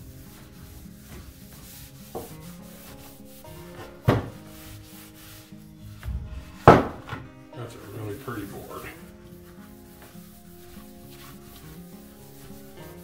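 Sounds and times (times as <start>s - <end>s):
background music: 0.0s - 13.0s
cloth rubbing on wooden board: 0.0s - 13.0s
wooden board knocking down: 4.1s - 4.4s, 6.0s - 7.3s.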